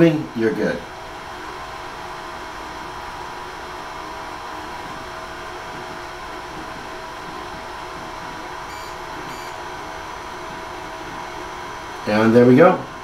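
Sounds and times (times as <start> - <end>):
printer fans and motors whirring: 0.0 - 13.0
high-pitched beeps: 8.7 - 9.6.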